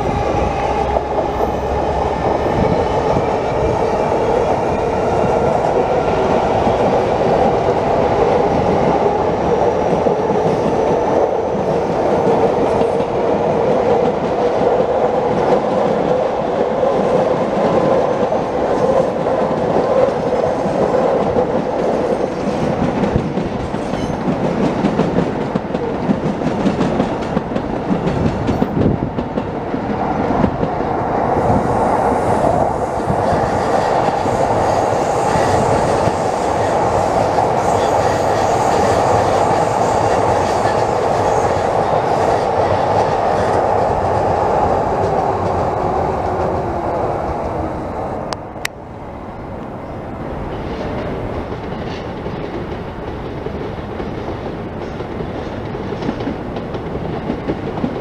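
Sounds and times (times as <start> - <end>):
train wheels rumbling on rails: 0.0 - 58.0
clickety-clack over rail joints: 4.5 - 31.5, 50.6 - 58.0.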